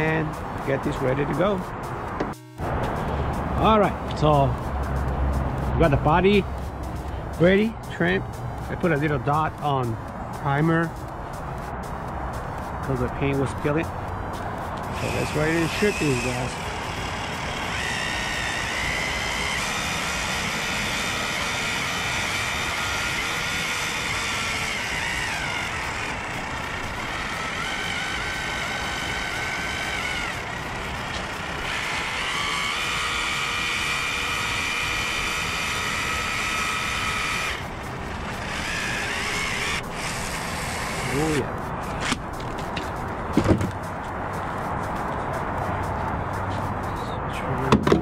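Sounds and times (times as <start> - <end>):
caulking gun motor whine: 14.9 - 41.4.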